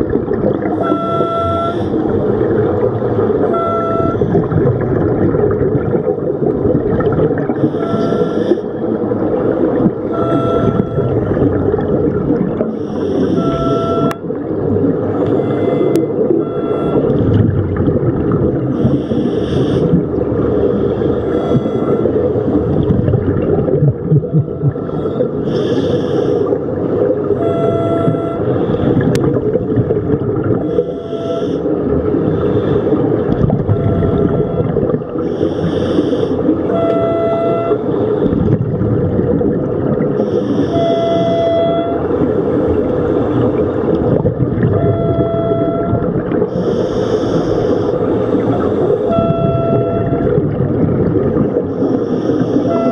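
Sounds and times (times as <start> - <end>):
low rush of water: 0.0 - 52.9
bubbling hiss of exhaled air: 18.7 - 21.3, 24.9 - 26.8, 39.9 - 40.8, 46.3 - 49.0, 51.0 - 52.7.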